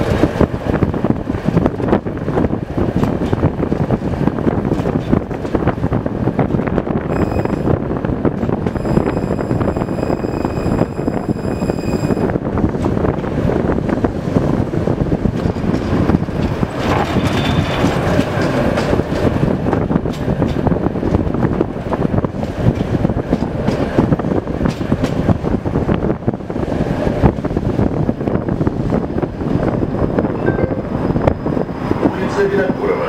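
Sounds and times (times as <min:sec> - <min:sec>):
tram wheels rumbling on rails: 0:00.0 - 0:33.0
high squeal: 0:07.1 - 0:07.8, 0:08.7 - 0:12.3.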